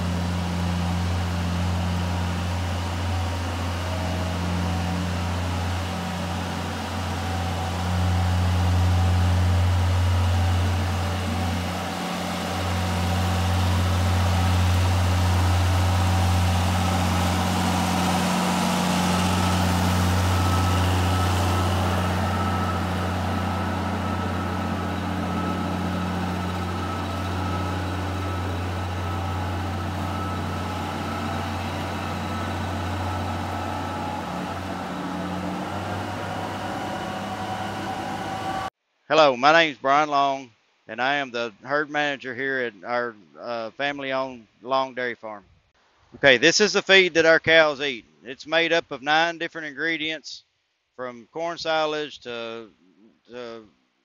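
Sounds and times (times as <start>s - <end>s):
tractor diesel engine running: 0.0s - 38.8s.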